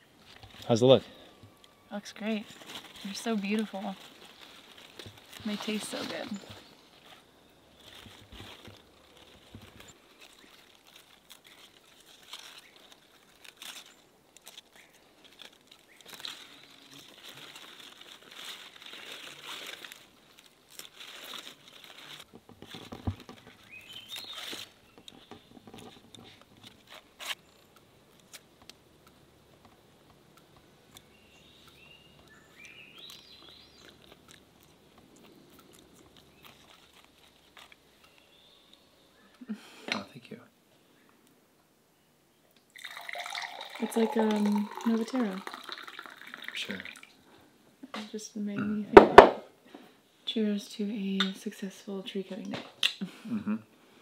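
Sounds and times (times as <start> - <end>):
leaves rustling and snapping: 2.2 - 38.9
bird chirping: 23.4 - 25.7, 30.9 - 36.7, 37.9 - 39.5.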